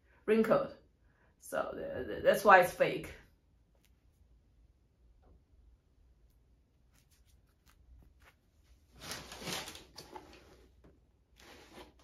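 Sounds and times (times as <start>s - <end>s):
foam insole rustling and scraping: 6.9s - 12.0s.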